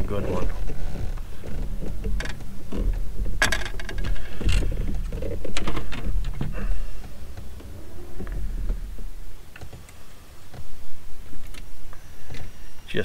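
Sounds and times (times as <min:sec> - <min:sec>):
steady low rumble: 0:00.0 - 0:13.0
small plastic clicks and rustles: 0:00.3 - 0:06.7.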